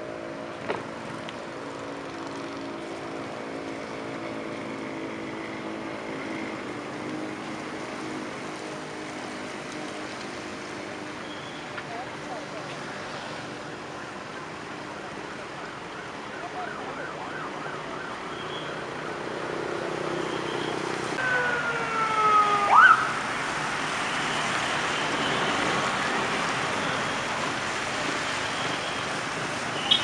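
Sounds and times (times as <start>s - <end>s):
vehicle engine and tyres on wet road: 0.0s - 30.0s
ambulance siren wailing: 13.7s - 27.6s.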